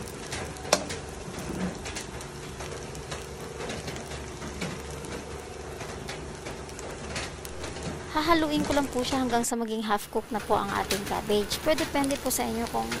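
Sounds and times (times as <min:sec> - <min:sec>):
food sizzling: 0:00.0 - 0:13.0.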